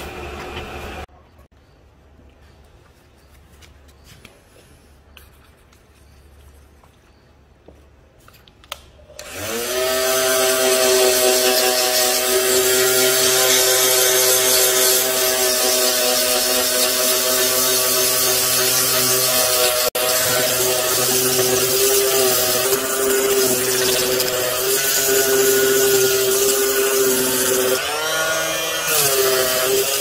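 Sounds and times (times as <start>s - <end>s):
electric power tool motor: 9.1s - 30.0s.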